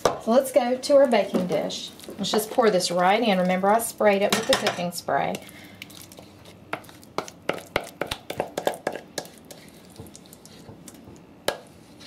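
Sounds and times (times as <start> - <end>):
spatula tapping a bowl: 6.7 - 11.7
spatula scraping a bowl: 8.3 - 10.8.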